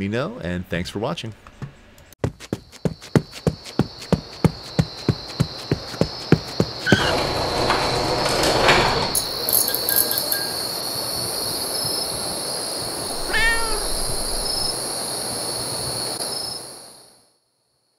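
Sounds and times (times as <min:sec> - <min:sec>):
steady noisy hiss: 0:09.2 - 0:17.2
short pitched cry: 0:13.2 - 0:14.1.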